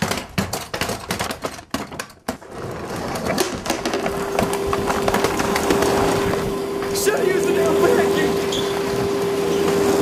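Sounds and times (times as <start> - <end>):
vacuum cleaner motor running: 3.4 - 10.0.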